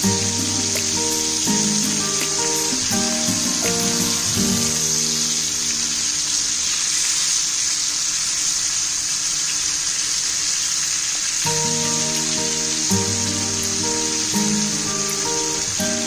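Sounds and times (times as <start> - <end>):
background music: 0.0 - 6.2, 11.5 - 16.0
fish sizzling in hot oil: 0.0 - 16.0.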